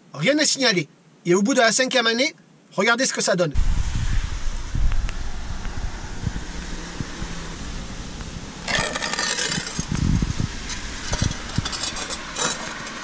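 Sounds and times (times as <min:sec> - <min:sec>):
wind rumble on microphone: 0:03.6 - 0:13.0
tile scraping on concrete: 0:08.7 - 0:09.9, 0:10.7 - 0:13.0.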